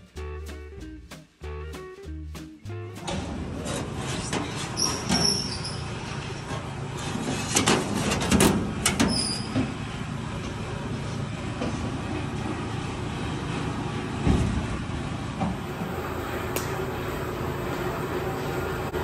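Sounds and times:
workshop rumble: 0:00.1 - 0:19.0
short high squeaks: 0:04.6 - 0:06.0, 0:09.1 - 0:09.6.

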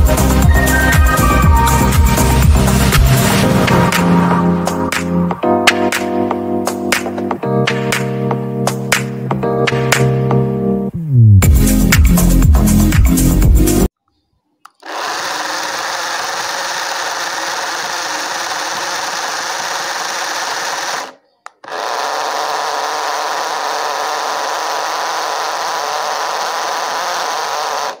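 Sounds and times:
small gear motor running: 0:14.8 - 0:28.0.

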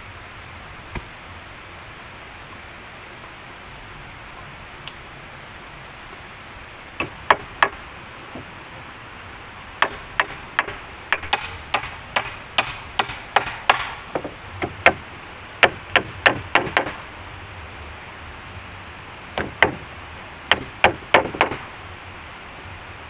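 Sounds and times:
steady hiss: 0:00.0 - 0:23.0
hand tool striking wood: 0:07.0 - 0:07.8, 0:09.8 - 0:15.0, 0:15.6 - 0:17.0, 0:19.4 - 0:19.8, 0:20.5 - 0:21.6.

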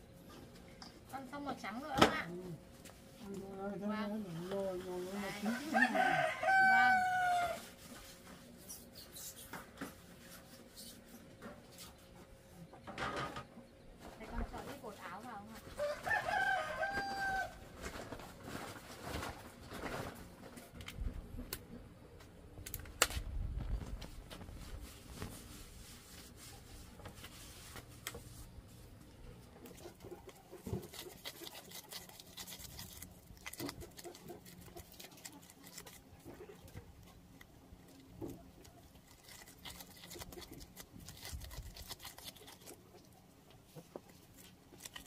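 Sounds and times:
rooster crowing: 0:05.5 - 0:07.7, 0:15.8 - 0:17.6.

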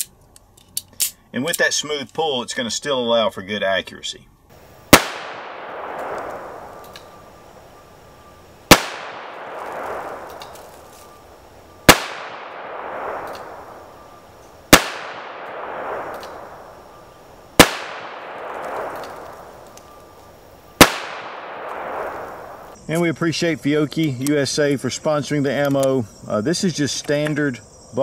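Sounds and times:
revolver gunshots with echo: 0:04.9 - 0:07.4, 0:08.6 - 0:11.2, 0:11.8 - 0:19.6, 0:20.7 - 0:22.7.

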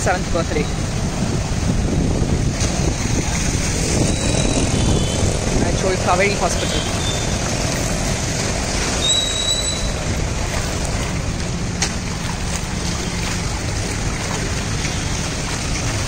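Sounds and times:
rushing water: 0:00.0 - 0:16.0
traffic: 0:00.0 - 0:16.0
high whistle-like tone: 0:09.0 - 0:10.0.

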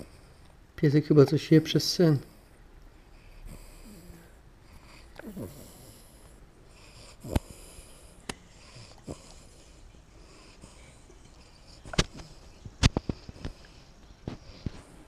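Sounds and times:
puppy breathing softly: 0:02.1 - 0:15.0
puppy mouth clicks: 0:11.8 - 0:13.6.

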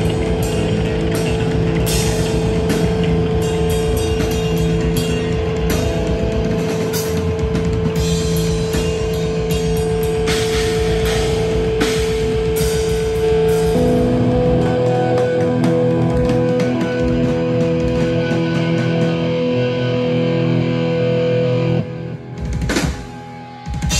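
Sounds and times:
distorted electric guitars: 0:00.0 - 0:23.9.

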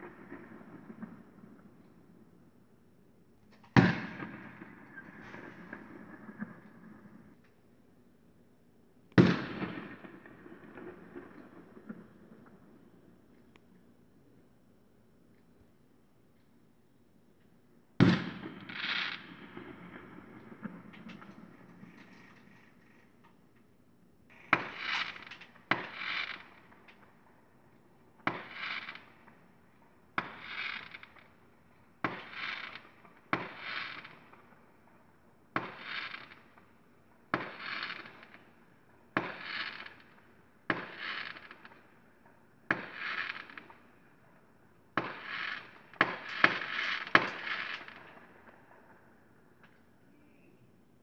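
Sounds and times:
trailing hiss of fireworks: 0:03.5 - 0:07.4, 0:18.0 - 0:23.2, 0:24.3 - 0:35.0, 0:35.6 - 0:50.6
fireworks bursting with bang: 0:03.6 - 0:07.2, 0:18.0 - 0:22.8, 0:24.3 - 0:27.0, 0:28.2 - 0:29.4, 0:30.2 - 0:31.3, 0:32.0 - 0:34.5, 0:35.6 - 0:36.5, 0:37.3 - 0:38.4, 0:39.1 - 0:41.8, 0:42.6 - 0:43.8, 0:44.9 - 0:49.0.

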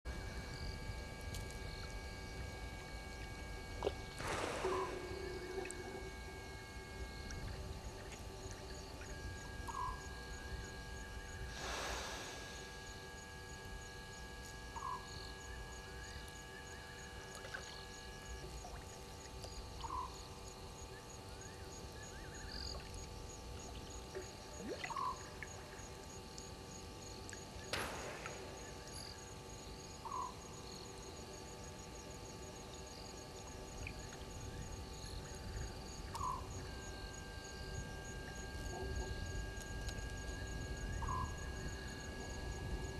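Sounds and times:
fast insect trill: 0:24.6 - 0:42.9.

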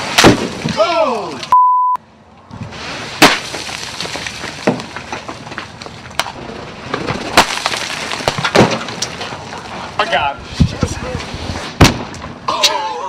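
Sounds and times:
short steady beep: 0:01.5 - 0:02.0
hailstones cracking: 0:03.2 - 0:09.9.

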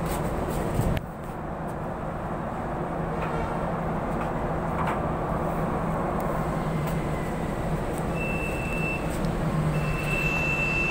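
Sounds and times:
train carriage rumbling: 0:00.0 - 0:10.9
high beep: 0:08.1 - 0:09.1, 0:09.7 - 0:10.9.

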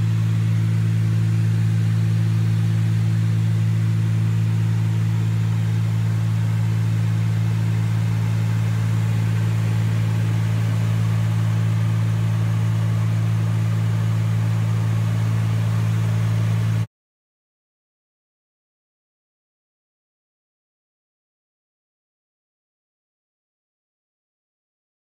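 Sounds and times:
aircraft engines humming in cabin: 0:00.0 - 0:16.9.

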